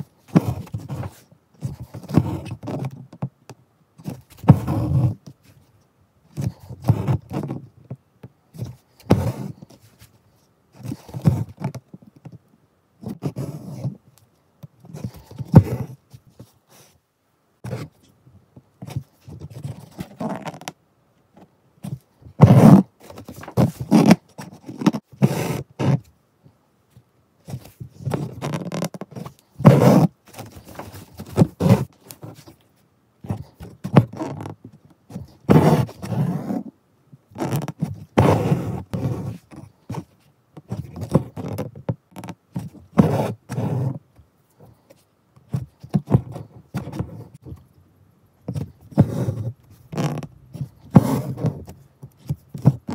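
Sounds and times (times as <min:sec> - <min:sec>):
thread scraping through fabric: 0:28.1 - 0:32.5.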